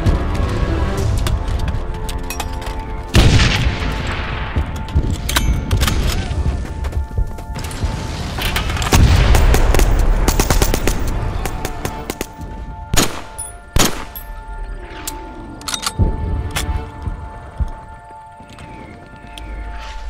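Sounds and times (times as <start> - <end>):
film music: 0.0 - 20.0
gunshots: 8.0 - 14.2.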